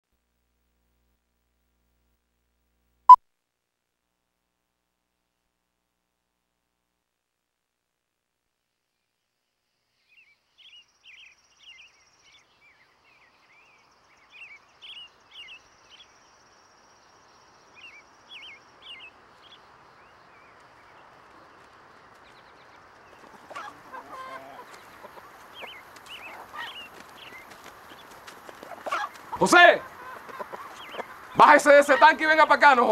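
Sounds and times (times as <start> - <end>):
birds chirping: 10.0 - 32.9
hens clucking: 23.0 - 32.6.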